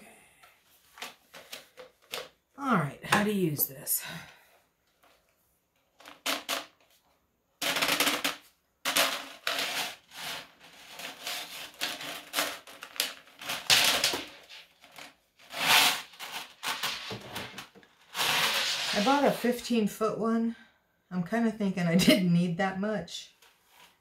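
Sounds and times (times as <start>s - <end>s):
steel cable rattling and scraping: 8.9s - 19.5s.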